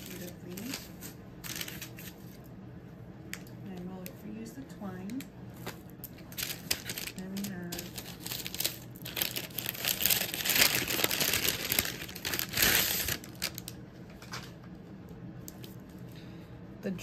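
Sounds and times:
wrapping crinkling: 0.0s - 2.5s, 5.1s - 13.8s.

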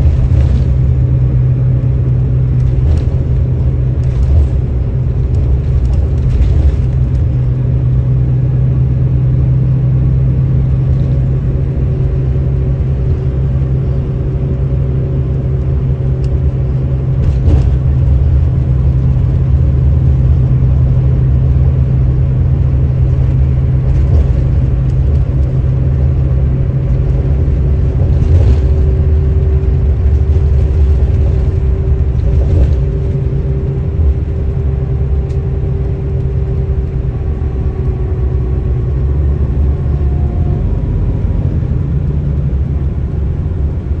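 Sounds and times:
car road and engine rumble: 0.0s - 44.0s.

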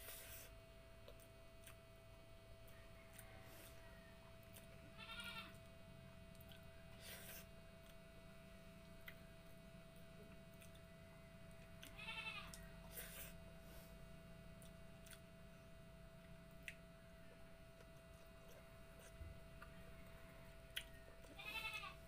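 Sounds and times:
faint hum: 0.0s - 22.0s
eating clicks and smacks: 14.6s - 15.3s, 20.7s - 21.3s.

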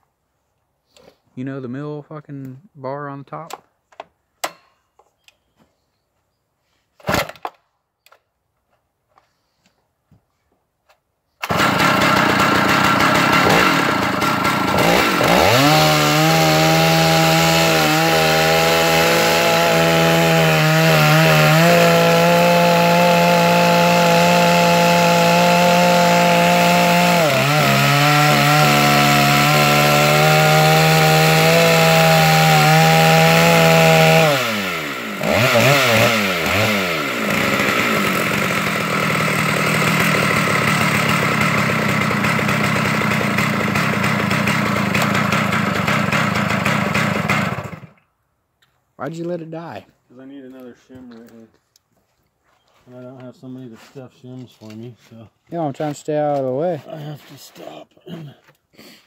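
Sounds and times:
chainsaw cutting through log: 11.4s - 48.0s.

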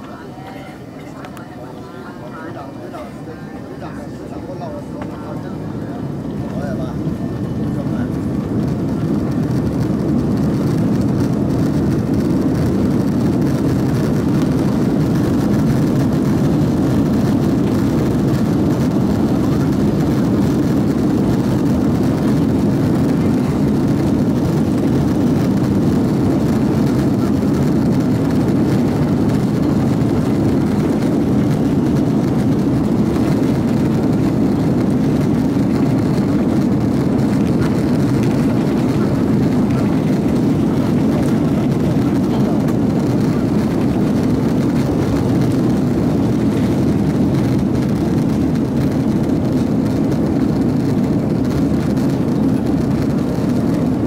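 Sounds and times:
deep jet engine rumble: 0.0s - 54.0s.

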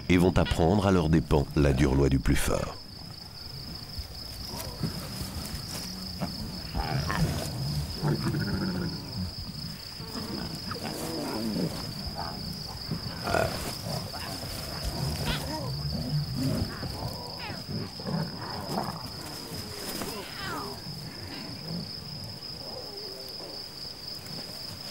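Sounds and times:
lion cubs mewing: 3.0s - 24.9s
lioness growling: 3.5s - 24.6s.

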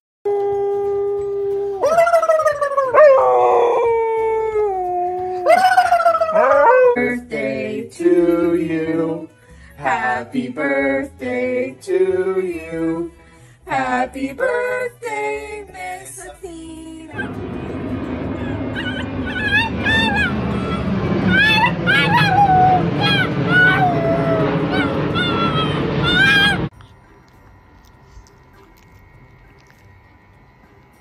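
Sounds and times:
dog howling: 0.3s - 7.2s, 17.1s - 26.7s
people singing: 6.9s - 17.8s.

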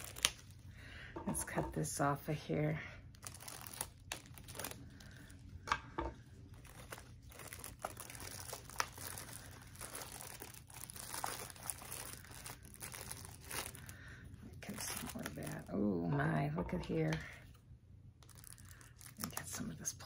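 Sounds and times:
plastic wrap crinkling and tearing: 0.0s - 0.7s, 3.1s - 17.6s, 18.2s - 20.0s.

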